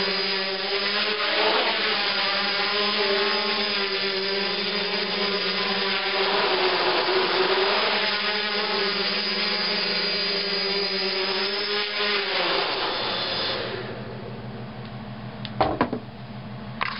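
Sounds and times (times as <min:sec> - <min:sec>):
quadcopter propellers buzzing: 0:00.0 - 0:14.1
sharp knocks: 0:15.6 - 0:16.1.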